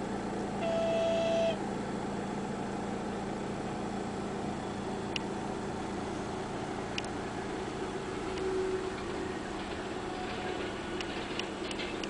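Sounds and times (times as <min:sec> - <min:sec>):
train passing rumble: 0:00.0 - 0:12.0
short steady tone: 0:00.6 - 0:01.6.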